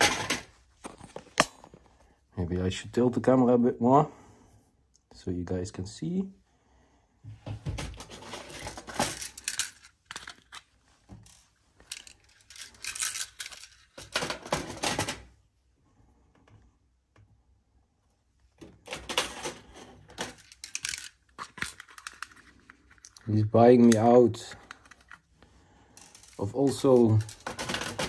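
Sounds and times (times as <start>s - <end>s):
plastic pieces rattling in drawer: 7.8s - 10.6s, 11.2s - 15.2s, 18.9s - 25.2s, 26.0s - 28.0s.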